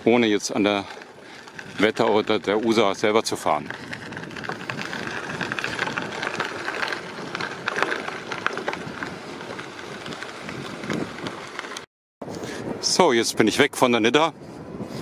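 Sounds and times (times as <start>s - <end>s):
bicycle tyres crunching on gravel: 0.0s - 11.9s
bike clicking and rattling: 0.0s - 11.9s.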